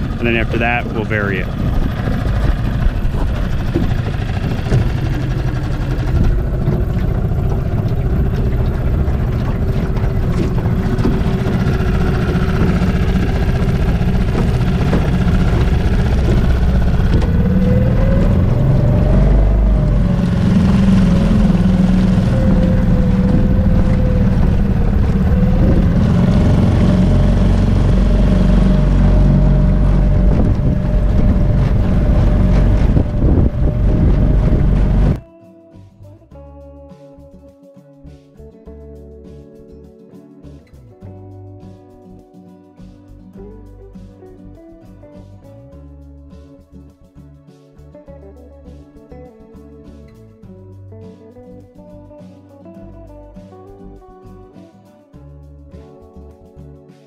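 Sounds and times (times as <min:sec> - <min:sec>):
outboard motor running: 0:00.0 - 0:35.2.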